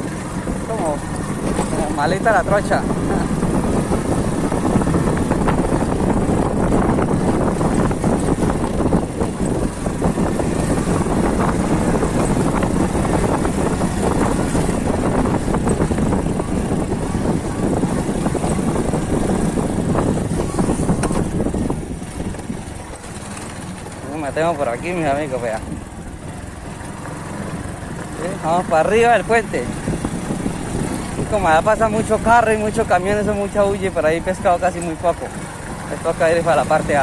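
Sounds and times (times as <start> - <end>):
wind rushing: 0.0 - 23.1, 29.2 - 33.1
motorcycle engine running: 0.0 - 37.0
tyres on gravel: 18.1 - 29.7.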